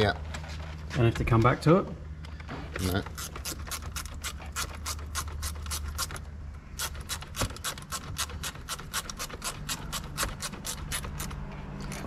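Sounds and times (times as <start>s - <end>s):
hand ratchet clicking rapidly: 6.8s - 12.0s.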